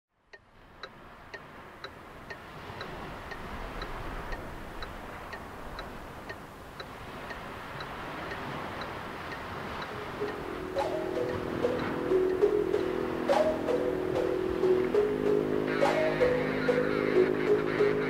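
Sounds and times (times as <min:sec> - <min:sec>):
clock-like tick: 0:00.4 - 0:18.0.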